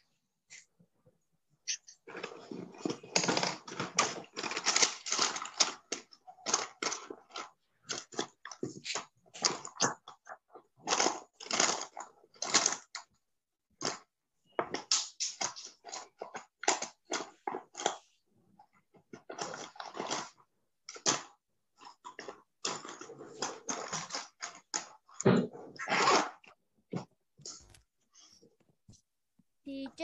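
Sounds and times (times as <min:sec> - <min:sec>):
rustling and scraping: 0:01.6 - 0:12.8.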